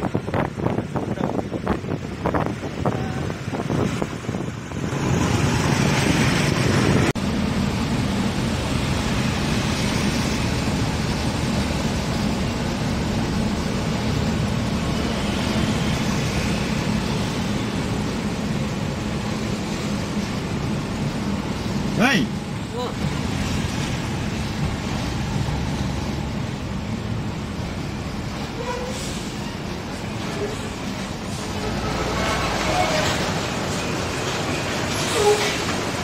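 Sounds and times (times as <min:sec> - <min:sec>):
road noise inside car: 0:00.0 - 0:36.0.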